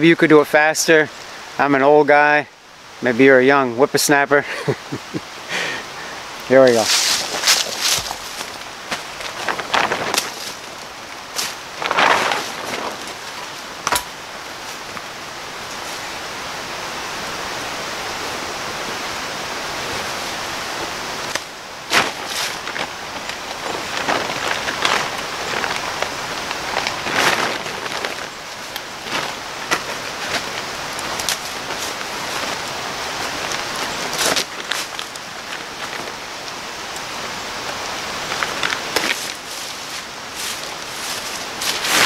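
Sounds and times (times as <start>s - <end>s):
plastic tarp rustling: 6.7s - 15.0s, 19.7s - 36.2s, 38.1s - 42.0s
sharp crackles: 6.8s - 15.1s, 21.2s - 37.1s, 38.2s - 42.0s.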